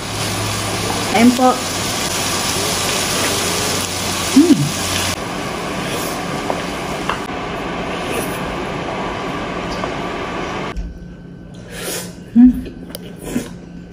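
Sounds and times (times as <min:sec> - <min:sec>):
food sizzling on hot plate: 0:00.0 - 0:10.7
person humming: 0:04.3 - 0:05.0.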